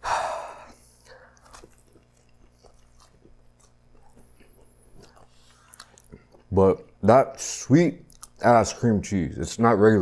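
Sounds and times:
mouth clicks while chewing: 0:01.0 - 0:06.5, 0:08.0 - 0:08.4.

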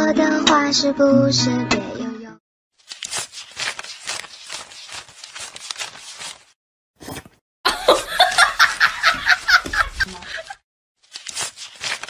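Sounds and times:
person laughing: 0:07.7 - 0:10.6.

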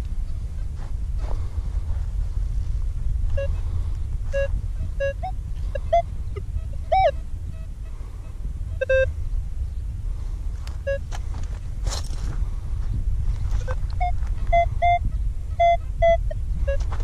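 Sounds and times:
low rumble: 0:00.0 - 0:17.0
metal detector beeps: 0:03.4 - 0:03.6, 0:04.3 - 0:07.7, 0:08.8 - 0:09.1, 0:10.8 - 0:11.1, 0:13.6 - 0:17.0.

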